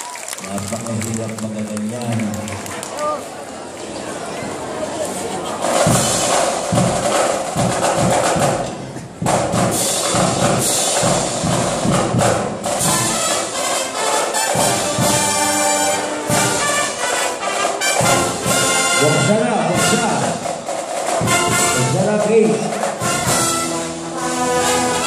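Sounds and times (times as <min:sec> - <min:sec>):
brass marching band playing: 0:05.4 - 0:25.0
drums keeping a beat: 0:05.6 - 0:25.0
horns holding chords: 0:23.0 - 0:25.0.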